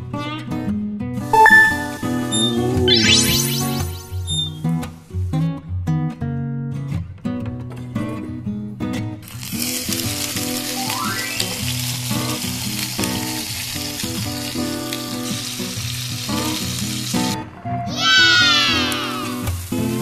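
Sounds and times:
background guitar music: 0.0 - 20.0
oil sizzling in a pan: 9.2 - 20.0.

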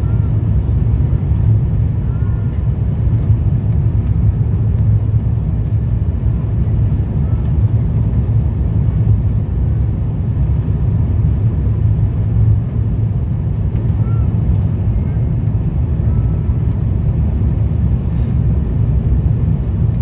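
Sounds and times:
airplane cabin rumble: 0.0 - 20.0.

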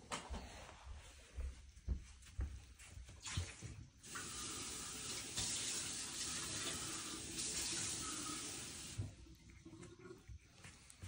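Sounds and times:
running water rushing: 4.0 - 9.2.

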